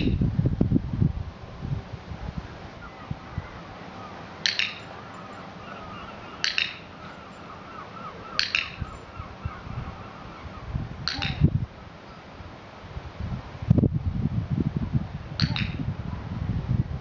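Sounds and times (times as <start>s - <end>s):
dog-training clicker clicks: 4.4s - 4.9s, 6.4s - 6.8s, 8.4s - 8.8s.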